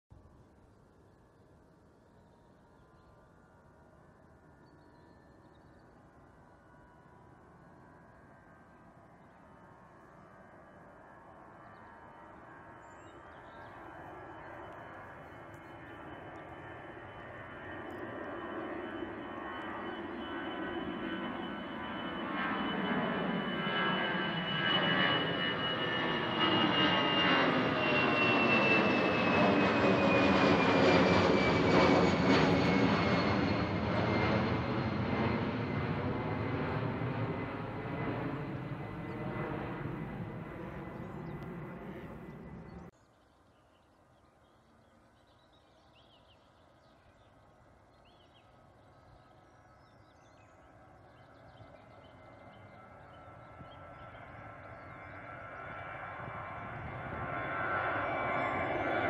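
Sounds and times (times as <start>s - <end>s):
jet airliner engine noise: 0.2s - 43.0s, 44.7s - 59.0s.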